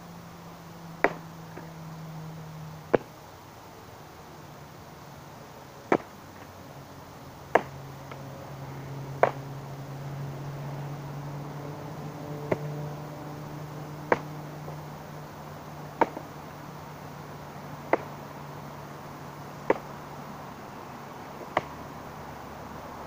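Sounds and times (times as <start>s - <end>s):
stick knocking against stick: 9.2s - 9.4s, 17.9s - 18.1s.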